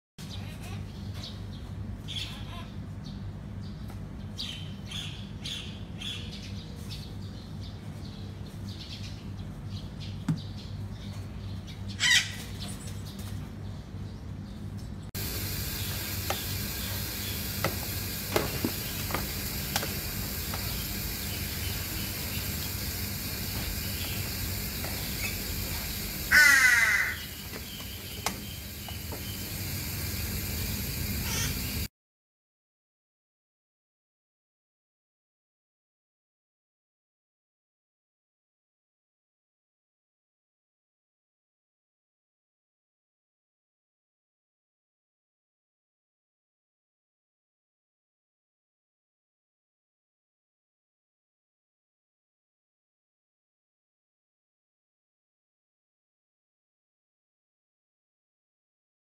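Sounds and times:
steady low hum: 0.2s - 31.9s
hornbill harsh calls: 12.0s - 12.4s, 20.1s - 29.0s, 31.2s - 31.8s.

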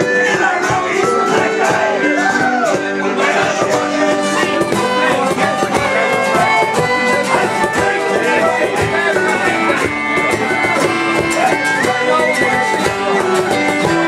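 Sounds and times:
banjo: 0.0s - 14.0s
fiddle: 0.0s - 14.0s
strummed rhythm: 0.0s - 14.0s.

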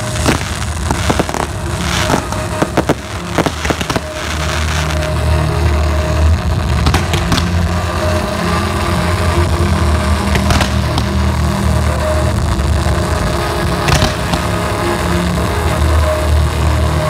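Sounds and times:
fireworks bangs and crackles: 0.0s - 17.0s
low rumble: 0.0s - 17.0s.

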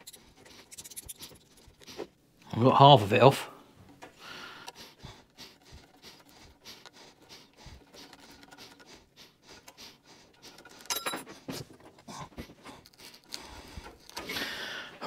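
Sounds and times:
ringing metal clink: 10.9s - 11.3s.

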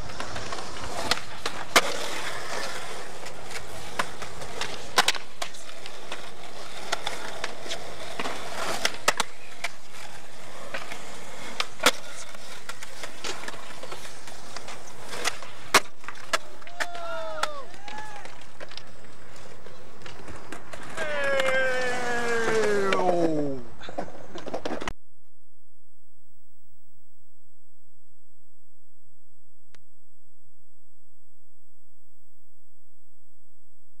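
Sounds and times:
skateboard popping and slapping down: 0.0s - 24.9s
skateboard wheels rolling on concrete: 0.0s - 25.0s.

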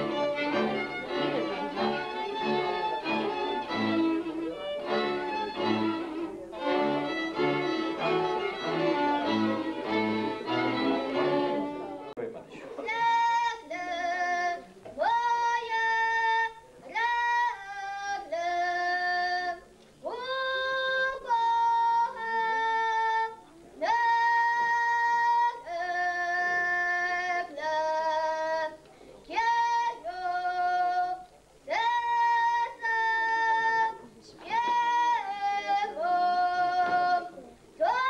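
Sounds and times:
girl singing unaccompanied: 12.8s - 38.0s.

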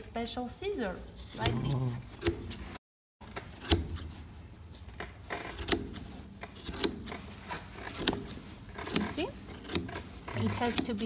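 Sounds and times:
shears snipping yarn: 1.2s - 2.8s, 5.3s - 11.0s.

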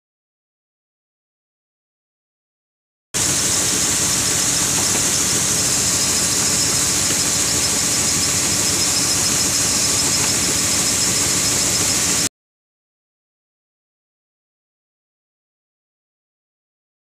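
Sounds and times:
combine harvester running: 3.2s - 12.3s
grain pouring with high hiss: 3.2s - 12.3s.

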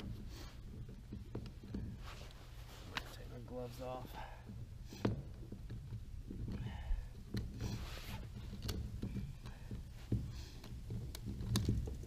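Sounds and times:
plastic fitting clicks and scrapes: 4.9s - 12.0s.

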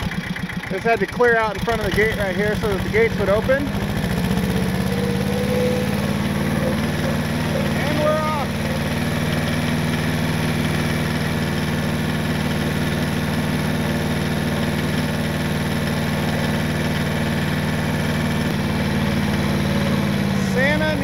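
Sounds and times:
tractor engine droning: 0.0s - 21.0s.

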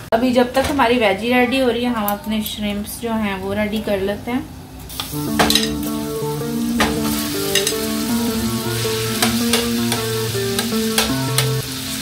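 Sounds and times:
shrimp sizzling in hot oil: 4.9s - 12.0s
soft background music: 5.1s - 12.0s
metal utensil clicking on pan: 5.4s - 5.9s, 6.8s - 7.9s, 9.2s - 11.6s.

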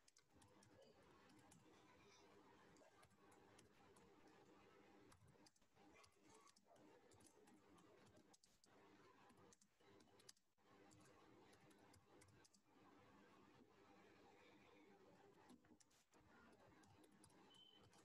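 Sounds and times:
keyboard typing clicks: 0.0s - 1.7s, 16.5s - 18.0s.

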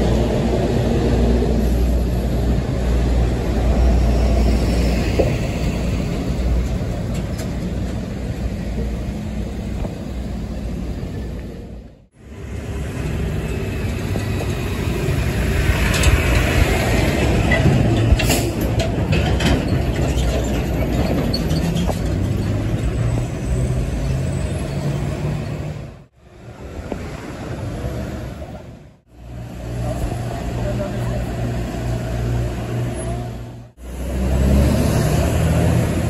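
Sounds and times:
diesel trucks passing: 0.0s - 36.0s
metallic clanks of trailer: 15.6s - 23.5s.

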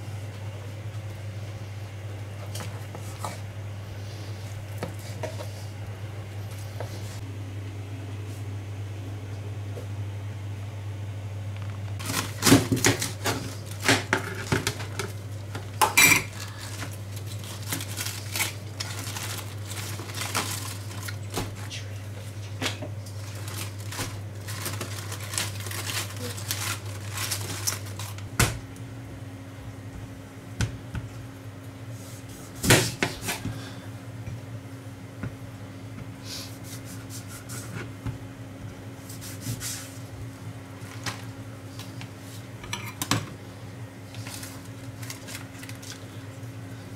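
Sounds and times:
steady low hum: 0.0s - 46.9s
lettuce leaves crunching and tearing: 16.3s - 21.4s, 23.2s - 28.3s, 44.2s - 46.2s.

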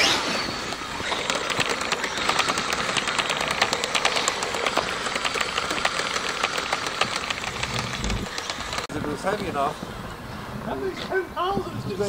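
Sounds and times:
electric motor running: 0.0s - 9.4s
plastic tracks clattering: 0.0s - 9.5s.

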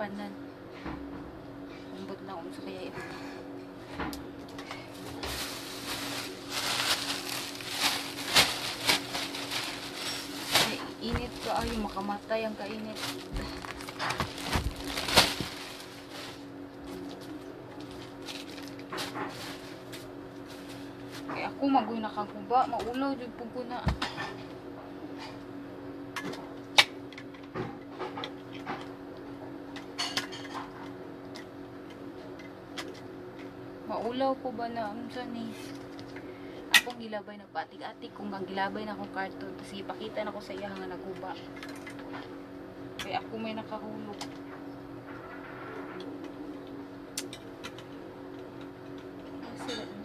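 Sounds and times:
faint steady hum: 0.0s - 50.0s
plastic bag crinkling: 4.8s - 21.3s.

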